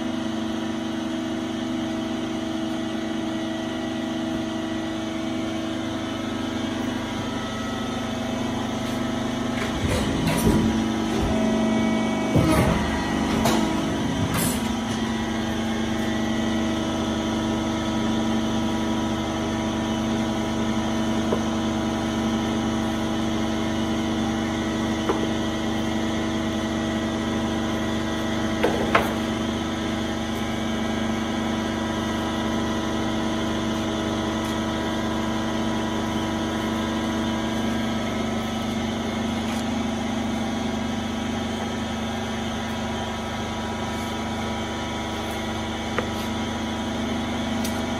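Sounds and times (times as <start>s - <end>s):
hydraulic pump motor humming: 0.0s - 47.9s
cutting press knocks: 9.5s - 15.1s.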